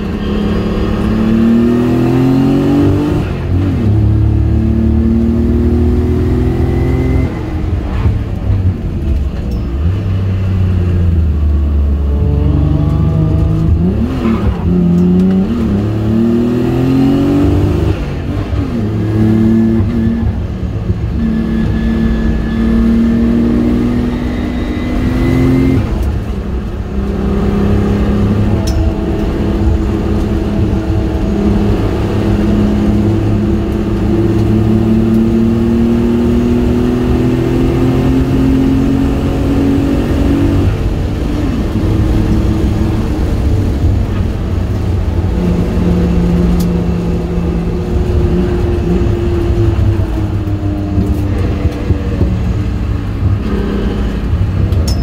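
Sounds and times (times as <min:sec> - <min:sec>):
car engine revving through gears: 0:00.0 - 0:54.9.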